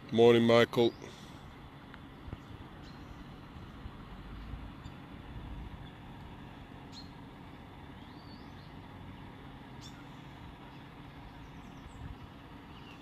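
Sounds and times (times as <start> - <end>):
steady low rumble: 0.0 - 13.0
faint bird chirps: 6.8 - 13.0.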